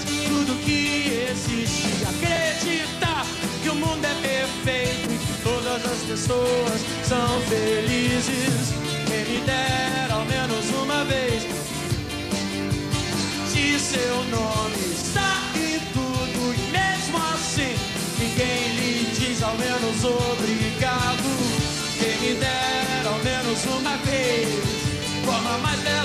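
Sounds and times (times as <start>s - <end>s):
man singing into microphone: 0.0s - 11.7s, 13.4s - 26.0s
live rock band playing: 0.0s - 26.0s.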